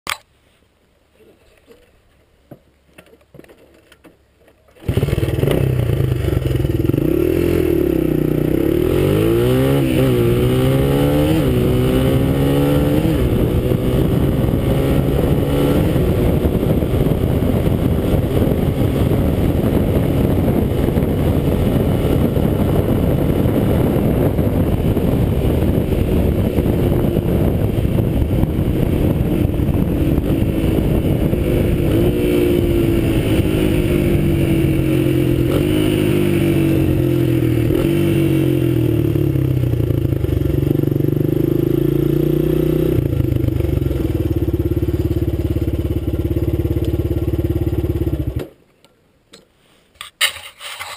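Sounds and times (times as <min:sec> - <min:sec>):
dirt bike engine accelerating: 0:04.8 - 0:48.5
wind rush on microphone: 0:08.7 - 0:45.8.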